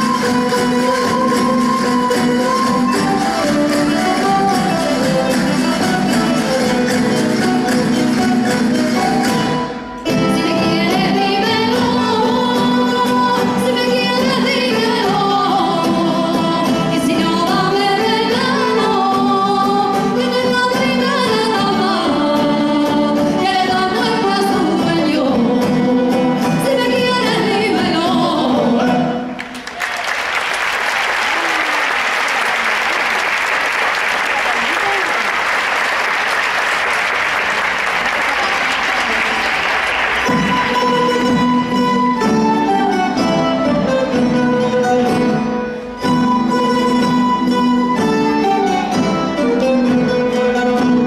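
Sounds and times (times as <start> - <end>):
guitars and plucked strings: 0.0 - 29.5, 40.1 - 51.0
folk singers: 10.0 - 29.5
audience applauding: 29.4 - 41.3.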